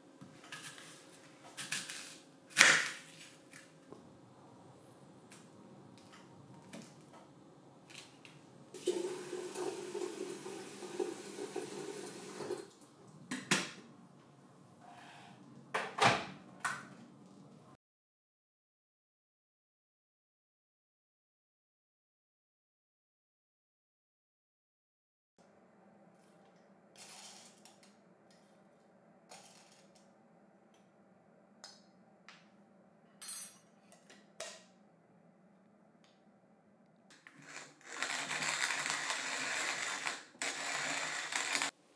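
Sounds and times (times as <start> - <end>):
water filling kettle: 8.7 - 13.1
coffee beans rattling with spoon: 37.3 - 41.7.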